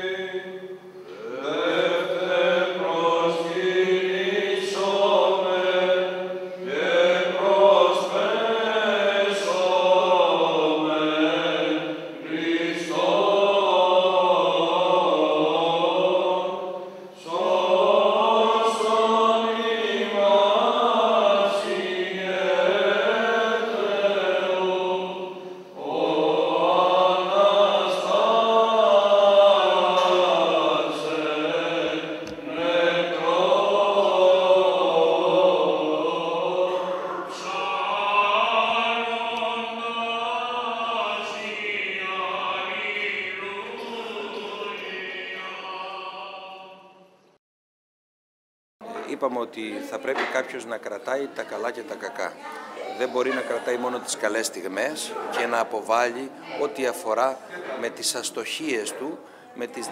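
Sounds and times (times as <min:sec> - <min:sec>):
voices chanting: 0:00.0 - 0:46.9.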